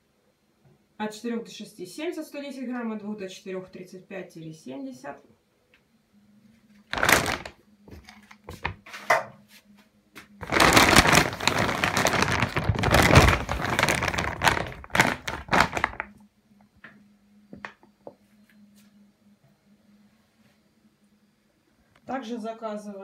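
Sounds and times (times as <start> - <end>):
plastic sack crinkling and rustling: 6.9 - 8.9, 10.4 - 16.2.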